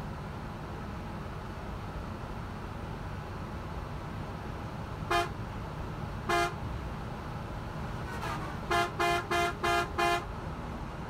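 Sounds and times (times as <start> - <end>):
road and tyre noise: 0.0 - 11.0
vehicle horn tooting: 5.1 - 5.4, 6.3 - 6.6, 8.1 - 10.3.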